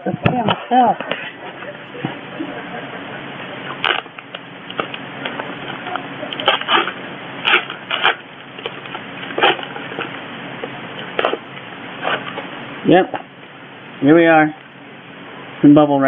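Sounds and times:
packaging rustling and scraping: 3.8 - 10.2, 11.0 - 12.5.

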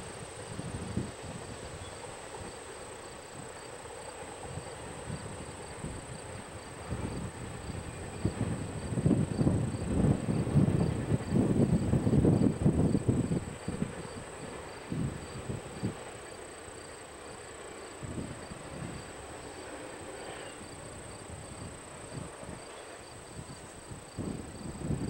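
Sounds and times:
wind buffeting microphone: 0.0 - 2.5, 4.4 - 16.1, 20.7 - 25.0
insects chirping: 0.0 - 25.0.

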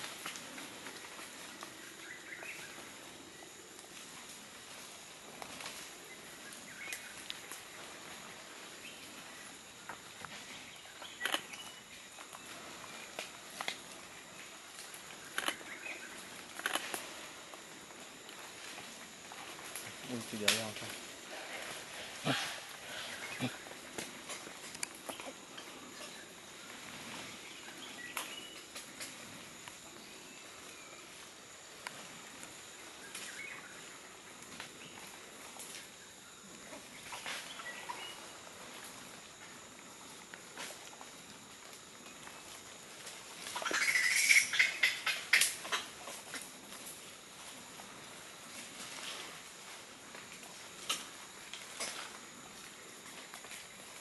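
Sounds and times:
crackles in dry leaf litter: 0.0 - 54.0
high insect hiss: 0.0 - 54.0
faint bird chirps: 10.5 - 13.0, 43.6 - 45.8.

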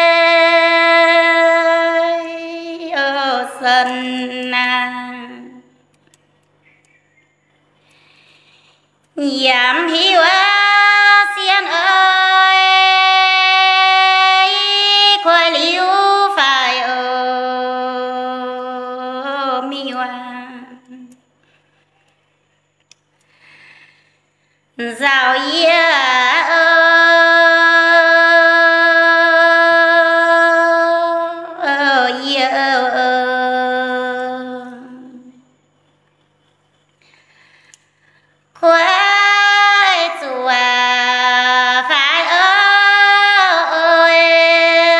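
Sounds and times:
woman singing unaccompanied: 0.0 - 5.9, 9.1 - 21.3, 24.8 - 35.5, 38.5 - 44.9.

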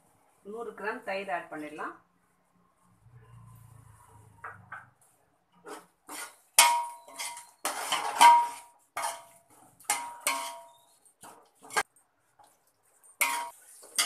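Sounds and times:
metal spoon scraping metal pot: 5.6 - 11.9, 13.2 - 14.0.

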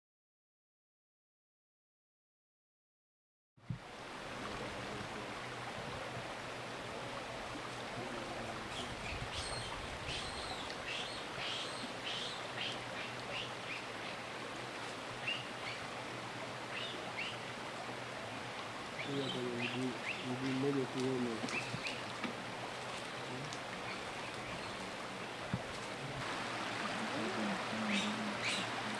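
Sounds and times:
steady hiss: 3.7 - 28.9
small birds chirping: 8.6 - 14.2, 15.2 - 15.9, 16.7 - 17.4, 18.9 - 26.2, 27.1 - 28.9.

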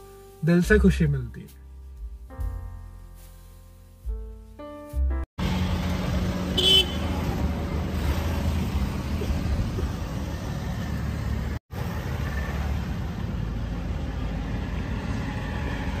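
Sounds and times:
car engine and tyre noise: 5.4 - 16.0.

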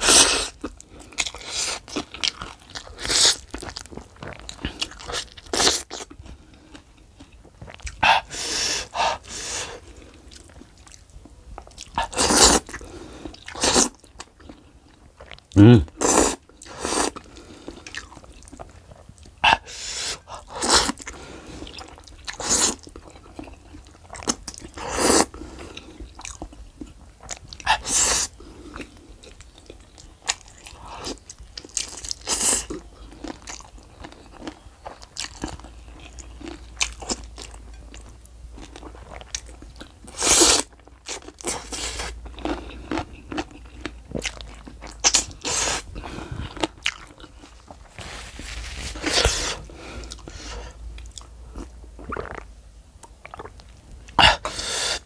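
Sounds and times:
wet chewing and crunching: 0.0 - 54.6.

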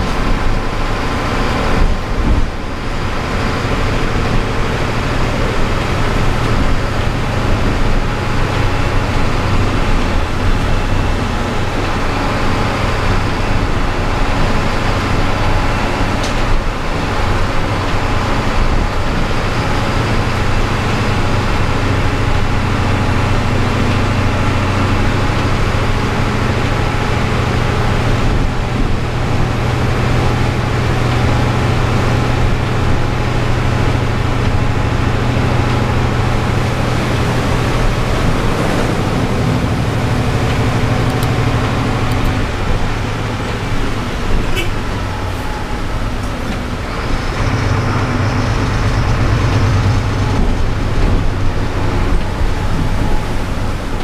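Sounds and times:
bus engine running: 0.0 - 54.0
tyres on wet road: 0.0 - 54.0.

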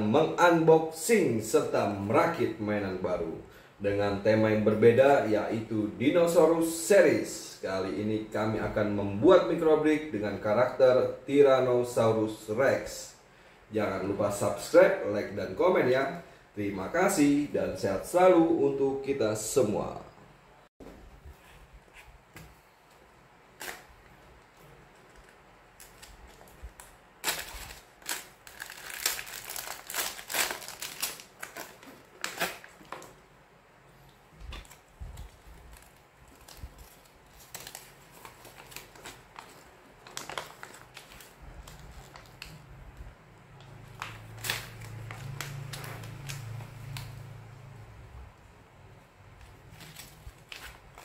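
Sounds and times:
plastic and paper crinkling: 22.5 - 33.2, 34.4 - 43.1, 43.7 - 47.2, 49.4 - 51.0.

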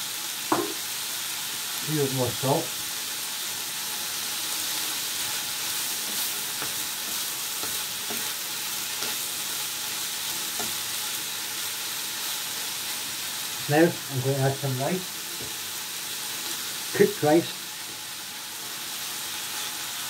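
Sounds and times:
food sizzling in a frying pan: 0.0 - 20.0
spoon tapping and scraping pan: 0.5 - 0.8, 6.5 - 8.4.

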